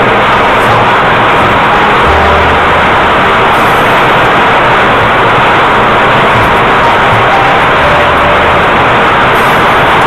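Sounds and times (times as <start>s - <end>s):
low motor hum: 0.0s - 10.0s.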